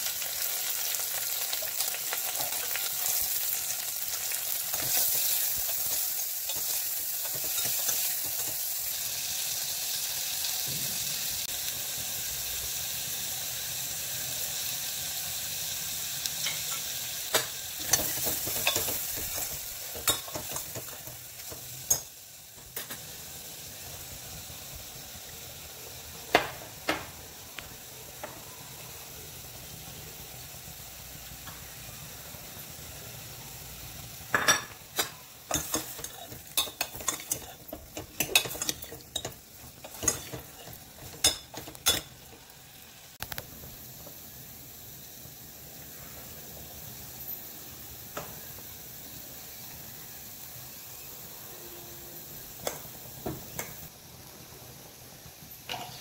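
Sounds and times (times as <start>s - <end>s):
vegetables sizzling in hot oil: 0.0s - 56.0s
spoon clicking and scraping metal pot: 4.7s - 8.6s, 35.0s - 42.2s.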